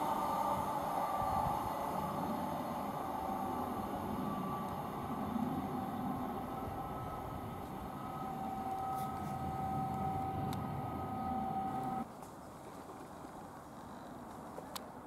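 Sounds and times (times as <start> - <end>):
train rumbling on track: 0.0 - 12.0
two-note electric whine: 0.0 - 12.0.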